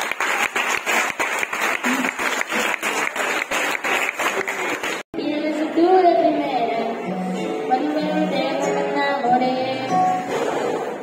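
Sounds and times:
audience applauding: 0:00.0 - 0:05.1
music with singing: 0:05.2 - 0:11.0.

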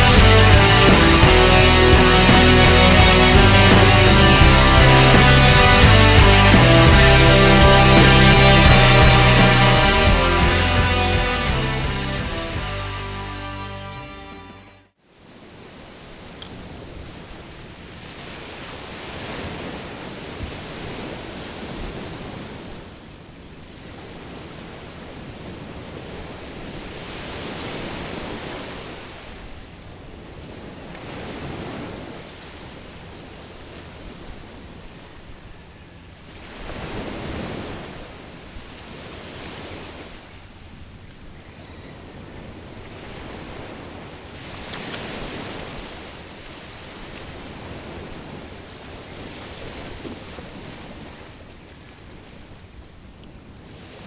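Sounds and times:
small waves breaking on sand: 0:15.0 - 0:54.0.

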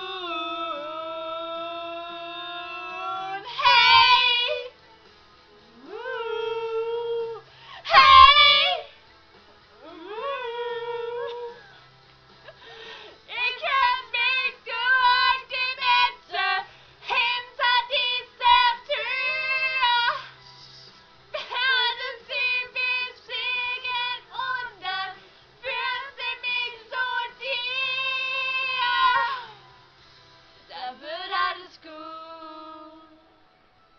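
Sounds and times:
women singing without words: 0:00.0 - 0:04.8, 0:05.8 - 0:08.9, 0:09.8 - 0:11.7, 0:13.3 - 0:20.4, 0:21.4 - 0:29.6, 0:30.7 - 0:33.3.

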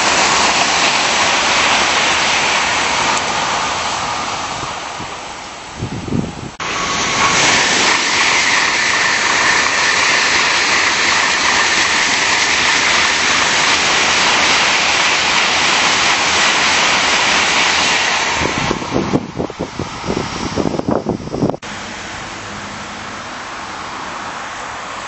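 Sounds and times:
train rushing past: 0:00.0 - 0:25.0.

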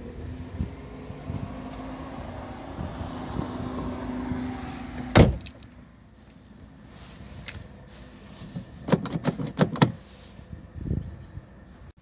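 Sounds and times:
car door slamming: 0:05.0 - 0:05.6
sharp clicks and knocks: 0:08.6 - 0:10.0.

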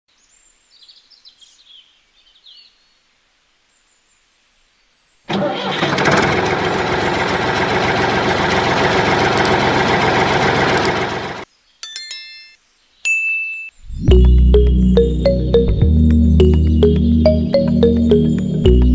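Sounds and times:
small motor running: 0:08.0 - 0:11.4.

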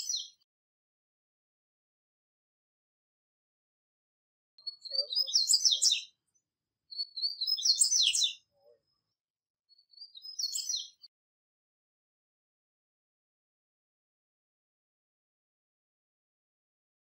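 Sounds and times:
bird twittering song: 0:00.0 - 0:00.4, 0:04.6 - 0:09.0, 0:09.7 - 0:11.1.

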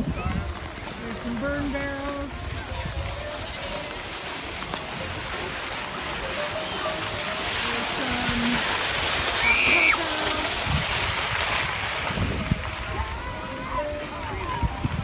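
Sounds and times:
sled runners hissing over snow: 0:00.0 - 0:15.0.

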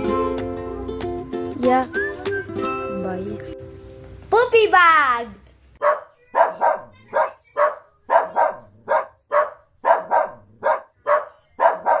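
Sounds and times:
dog barking: 0:05.8 - 0:12.0.

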